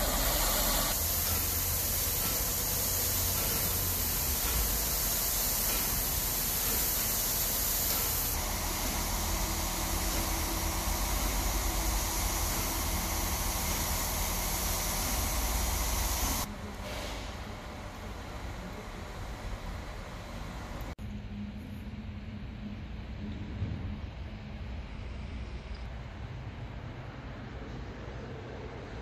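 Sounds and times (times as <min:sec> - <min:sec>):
steam hissing from locomotive: 0:00.0 - 0:21.0.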